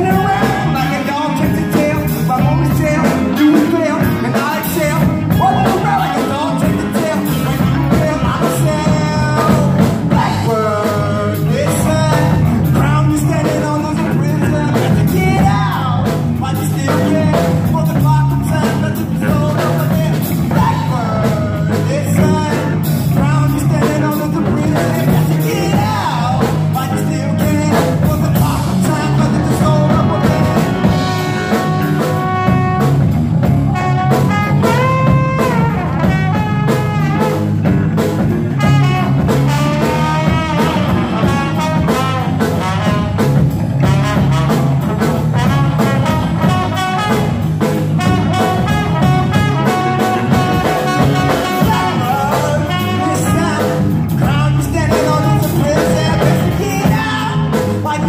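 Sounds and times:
live band playing: 0.0 - 58.0
man singing: 0.0 - 58.0
trombone: 16.8 - 58.0.

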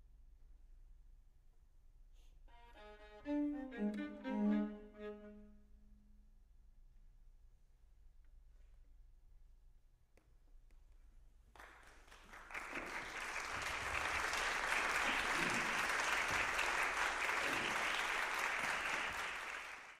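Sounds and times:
audience applause: 11.6 - 20.0.

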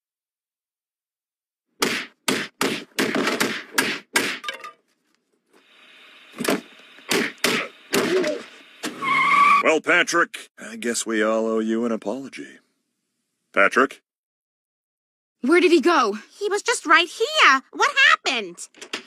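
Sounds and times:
cartoon whacks and thuds: 1.8 - 4.5, 6.5 - 8.3.

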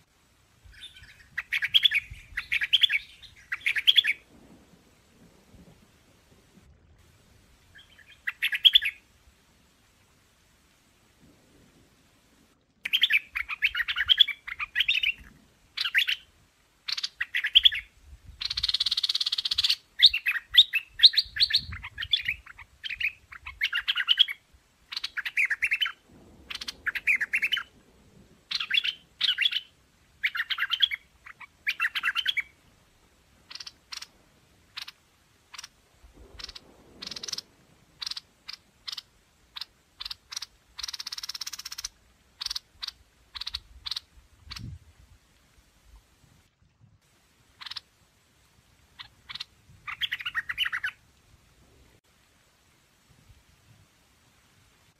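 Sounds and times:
bird chirping song: 0.7 - 4.2, 7.7 - 9.0, 12.8 - 16.3, 16.9 - 27.7, 28.5 - 32.6, 36.3 - 44.8, 47.6 - 47.9, 49.0 - 51.0
sharp single bird notes: 36.3 - 38.2.

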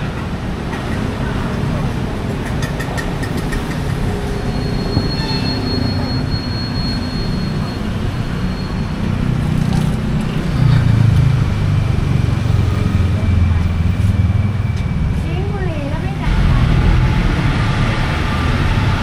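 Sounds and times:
city traffic rumble: 0.0 - 19.0.

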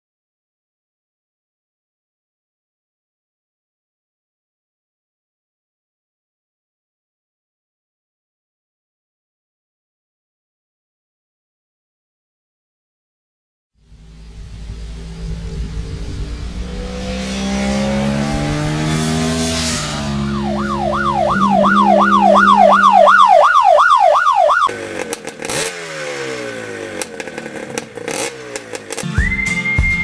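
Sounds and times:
motorcycle engine accelerating: 13.8 - 29.5
siren-like warbling tone: 14.0 - 24.7.

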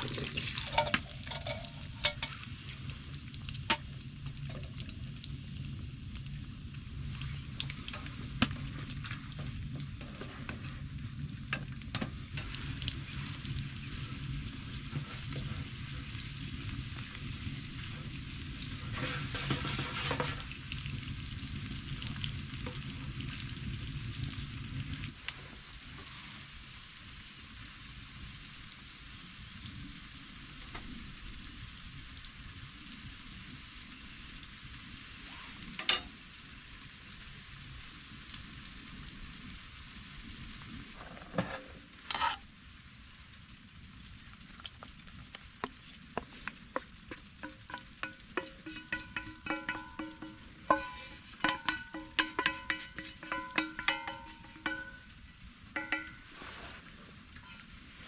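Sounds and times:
utensil stirring and scraping: 0.0 - 2.4, 18.9 - 20.5, 41.0 - 42.4, 45.6 - 57.7
food sizzling in a pan: 0.0 - 58.0.

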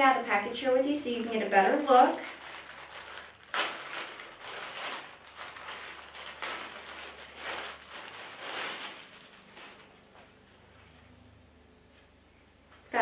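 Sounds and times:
plastic bag crinkling: 0.0 - 10.4.

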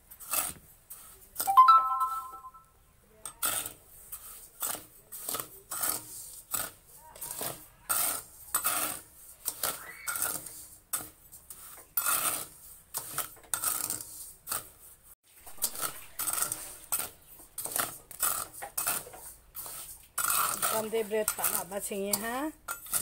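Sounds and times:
metal skimmer scraping a wok: 3.4 - 23.0
gritty sand shifting: 11.5 - 23.0.

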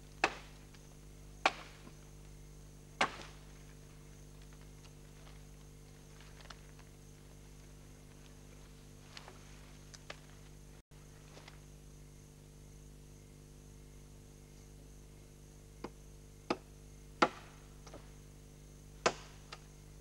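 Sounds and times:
axe chopping log: 0.2 - 0.6, 1.4 - 2.0, 3.0 - 3.4, 15.8 - 18.0, 19.0 - 19.5.

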